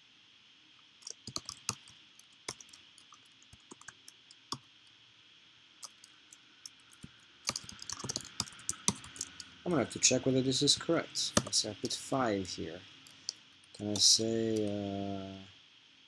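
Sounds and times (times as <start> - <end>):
faint steady hiss: 0.0 - 16.0
keyboard typing clicks: 1.0 - 4.2, 5.8 - 6.1, 6.7 - 9.5.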